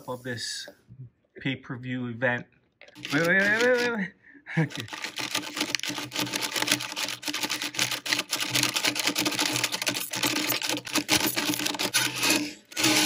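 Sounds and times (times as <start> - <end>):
plastic toys clicking and clacking: 2.8 - 4.0, 4.6 - 13.0.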